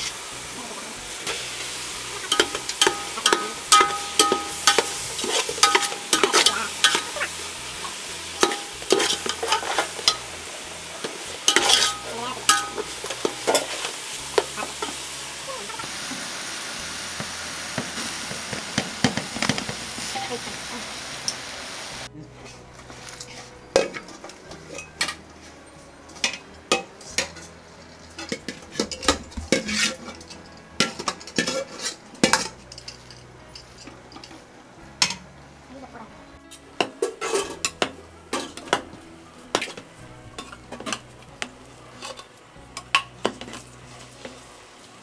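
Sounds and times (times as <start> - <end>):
metal ladle scraping a metal pot: 1.2 - 10.4, 11.0 - 15.1, 26.2 - 34.4, 36.8 - 38.8, 41.9 - 42.3.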